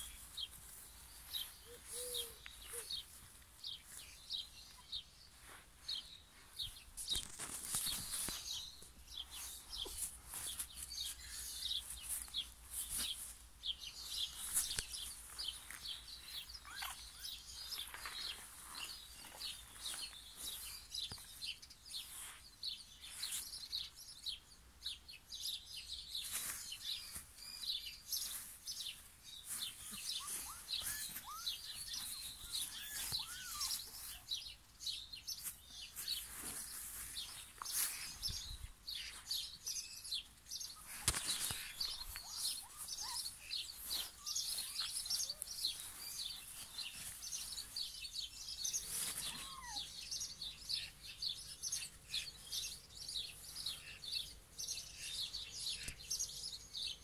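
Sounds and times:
small birds chirping: 0.0 - 57.0
rustling: 6.4 - 16.0, 35.4 - 38.2, 48.7 - 49.6.

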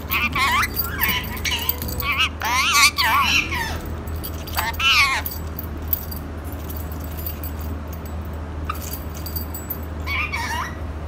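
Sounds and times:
parakeet warbling calls: 0.0 - 3.8, 10.1 - 10.8
steady low hum: 0.0 - 11.0.

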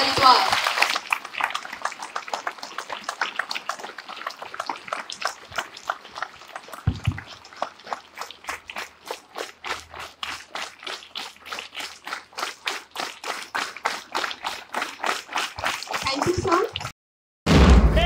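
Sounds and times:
crowd clapping in a steady beat: 0.0 - 16.9
low thumps: 6.9 - 7.3, 17.5 - 18.0.

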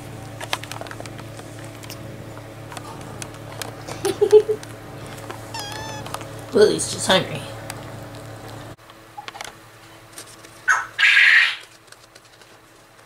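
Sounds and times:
steady low hum: 0.0 - 13.0
kitten mewing: 1.0 - 6.5.

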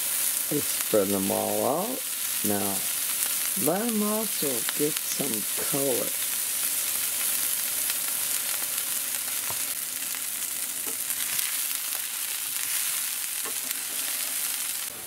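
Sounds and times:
vegetables sizzling in hot oil: 0.0 - 15.0
wooden spatula scraping: 12.6 - 14.6.

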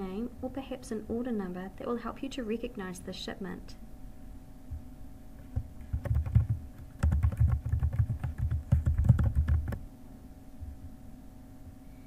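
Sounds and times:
typing on computer keyboard: 5.5 - 9.8.

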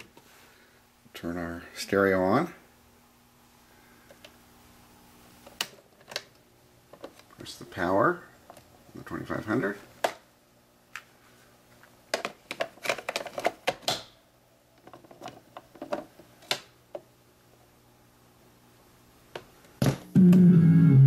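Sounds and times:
cassette plastic clicks and clatter: 12.1 - 14.1
music from speakers: 20.1 - 21.0.

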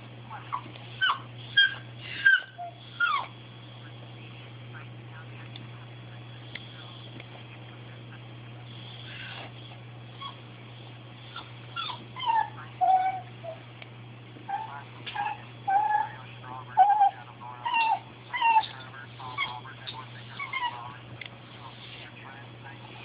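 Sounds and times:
dog whining and yelping: 0.5 - 3.4, 10.2 - 10.4, 11.3 - 13.6, 14.5 - 16.2, 16.8 - 18.7, 20.4 - 20.8.

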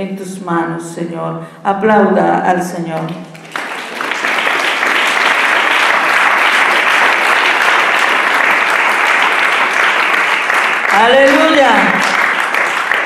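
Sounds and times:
congregation clapping: 3.0 - 13.0.

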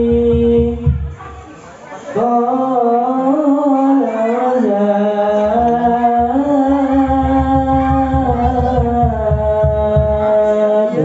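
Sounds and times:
person chanting over sound system: 0.0 - 11.0
low regular beat: 5.5 - 10.5.

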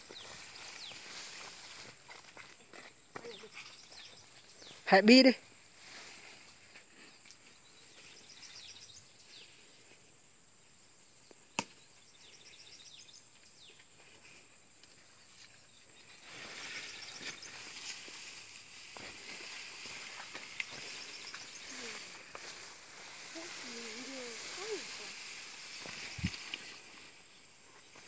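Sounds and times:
footsteps through tall grass: 0.0 - 3.6, 16.0 - 27.2
faint chirps: 3.1 - 10.0, 11.2 - 18.4, 19.0 - 28.0.

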